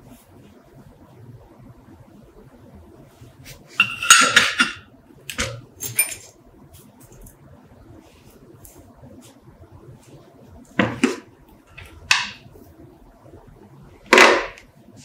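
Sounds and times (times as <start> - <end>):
steel parts clinking in plastic tub: 3.8 - 6.4.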